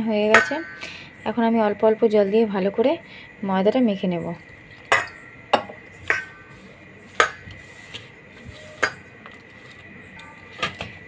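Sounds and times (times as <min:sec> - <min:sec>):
steel mixing bowl clinking: 0:00.3 - 0:00.9, 0:04.8 - 0:06.6.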